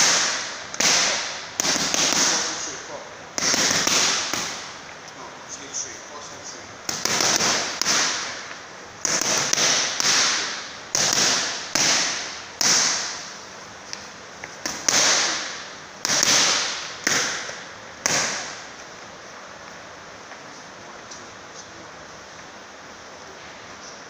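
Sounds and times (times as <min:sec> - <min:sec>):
boxing gloves smacking mitts: 0:00.0 - 0:02.7, 0:03.4 - 0:04.7, 0:06.9 - 0:13.4, 0:14.5 - 0:18.7.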